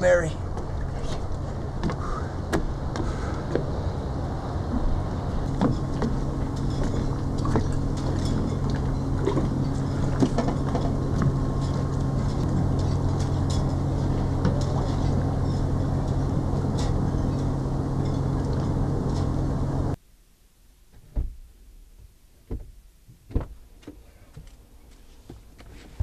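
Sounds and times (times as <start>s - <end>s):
low motor hum: 0.0s - 20.0s.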